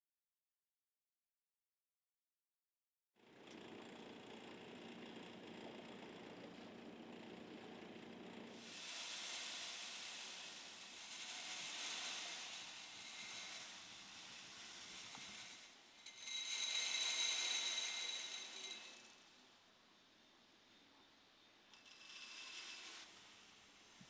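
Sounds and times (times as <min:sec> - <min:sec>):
airy hiss: 0:08.6 - 0:16.0.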